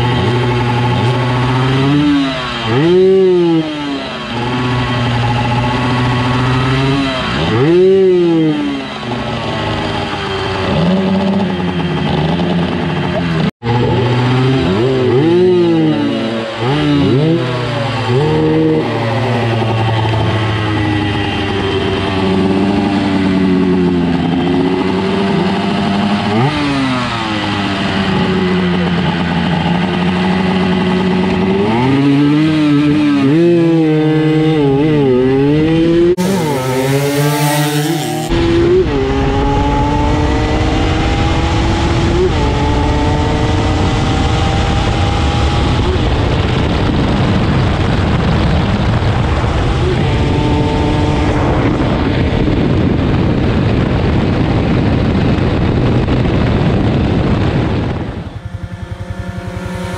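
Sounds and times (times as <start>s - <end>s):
motorcycle engine accelerating: 0.0s - 59.9s
wind rumble on microphone: 18.3s - 59.9s.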